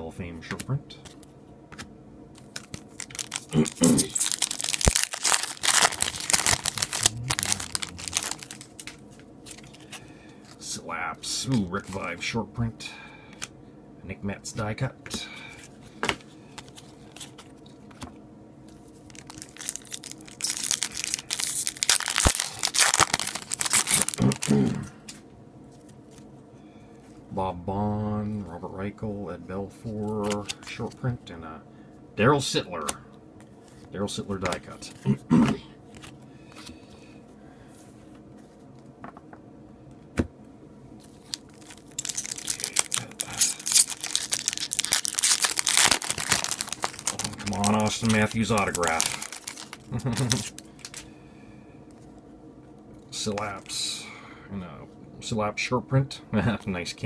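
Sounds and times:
foil wrapper tearing and crinkling: 0:02.5 - 0:10.0, 0:19.0 - 0:24.7, 0:41.2 - 0:51.1.

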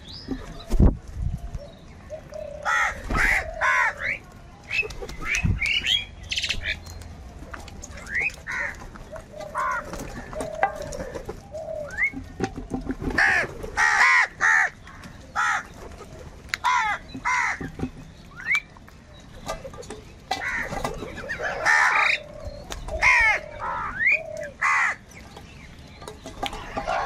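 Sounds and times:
crows cawing: 0:02.6 - 0:04.1, 0:08.5 - 0:08.8, 0:09.5 - 0:11.3, 0:13.2 - 0:15.8, 0:16.6 - 0:17.7, 0:20.4 - 0:22.3, 0:22.9 - 0:25.0.

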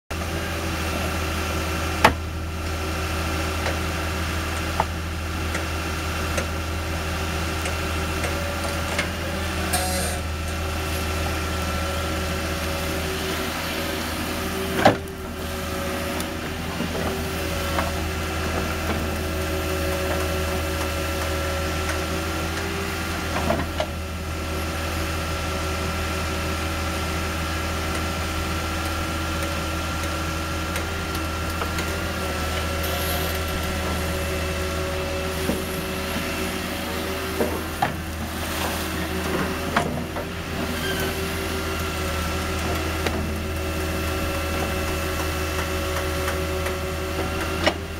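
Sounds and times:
excavator engine running: 0:00.1 - 0:47.9.

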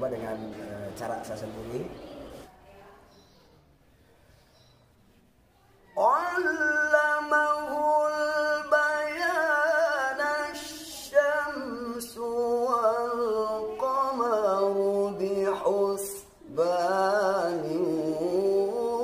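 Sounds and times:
man reciting melismatically: 0:06.0 - 0:19.0.

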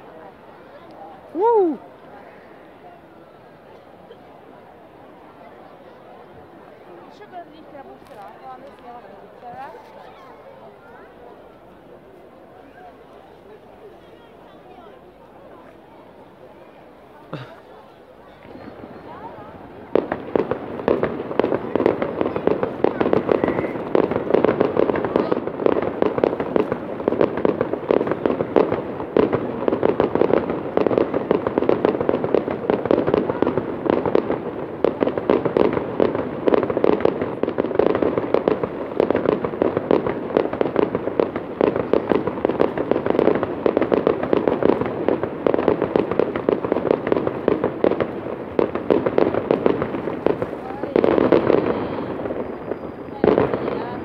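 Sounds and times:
fireworks bangs and crackles: 0:00.0 - 0:54.0.

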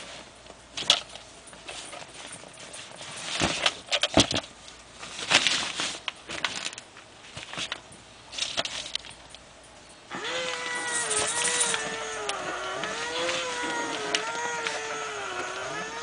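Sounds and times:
toy mechanism clicks and knocks: 0:10.5 - 0:12.5.

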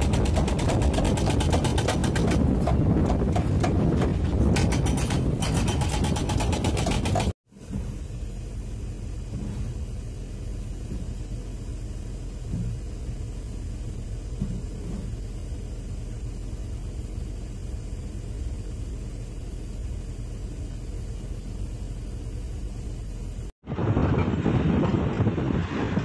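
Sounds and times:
diesel engine rumbling: 0:00.0 - 0:26.0.

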